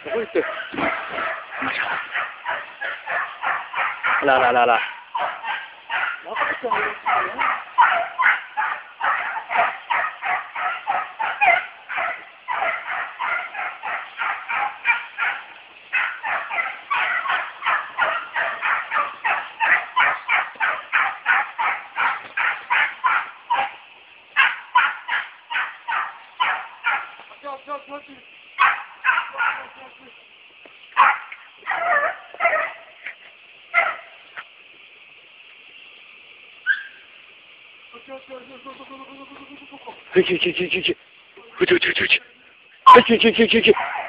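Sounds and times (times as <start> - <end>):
dog yelping barks: 0.1 - 23.8, 24.4 - 27.2, 28.6 - 29.8, 31.0 - 33.1, 33.7 - 34.2, 36.7 - 37.0, 42.9 - 44.0.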